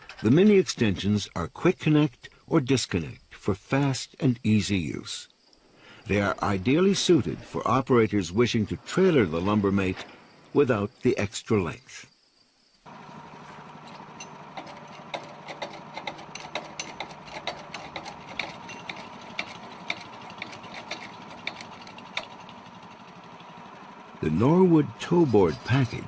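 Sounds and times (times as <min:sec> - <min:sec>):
sawmill engine idling: 0:12.9 - 0:26.0
metallic clicks and clanks: 0:13.8 - 0:23.0.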